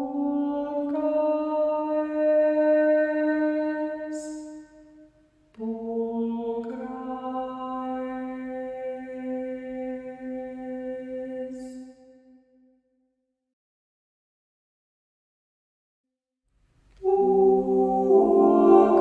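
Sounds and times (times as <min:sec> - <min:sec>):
a cappella choir singing hymn: 0:00.0 - 0:04.6, 0:05.6 - 0:12.0, 0:17.0 - 0:19.0.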